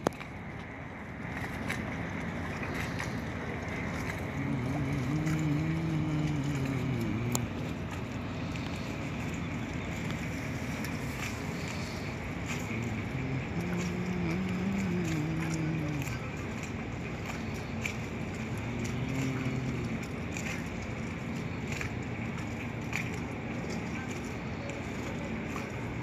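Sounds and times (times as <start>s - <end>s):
boat rumbling underway on water: 0.0s - 26.0s
wind on microphone: 2.2s - 17.5s.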